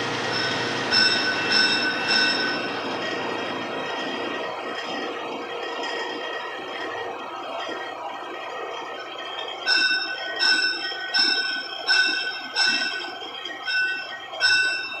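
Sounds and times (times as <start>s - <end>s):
steady background noise: 0.0s - 15.0s
hammer blows ringing on metal: 0.3s - 3.4s.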